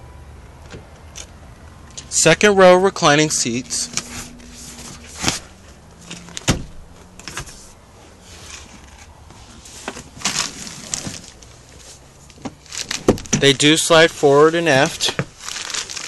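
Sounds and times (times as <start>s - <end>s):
rustling handling noise: 3.5s - 16.0s.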